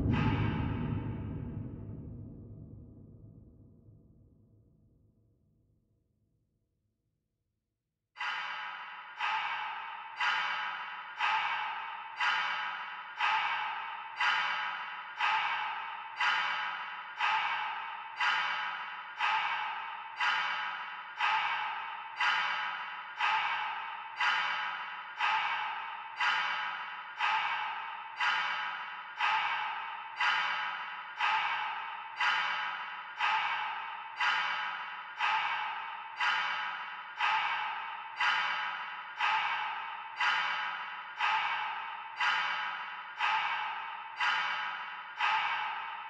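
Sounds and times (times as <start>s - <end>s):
dark ambient music: 0.0s - 3.7s
sharp percussive hit ringing: 0.0s - 3.7s.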